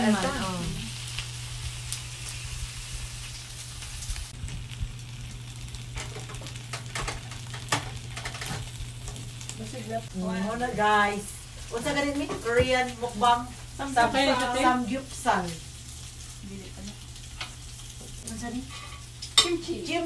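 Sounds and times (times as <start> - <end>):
meat sizzling on grill pan: 0.0 - 20.0
tongs clicking on pan: 18.7 - 19.8.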